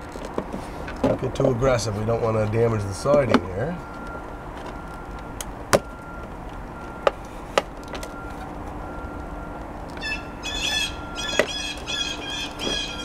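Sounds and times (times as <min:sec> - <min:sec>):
bird chirping: 0:10.0 - 0:13.0.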